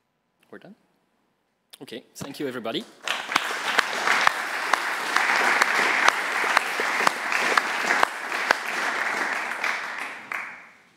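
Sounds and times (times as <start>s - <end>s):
audience applauding: 2.8s - 10.8s
sharp individual claps: 2.8s - 10.8s.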